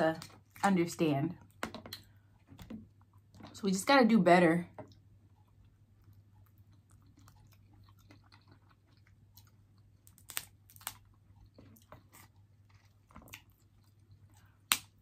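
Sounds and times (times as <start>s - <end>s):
quiet chewing: 4.8s - 15.0s
crab shells cracking: 7.6s - 13.8s.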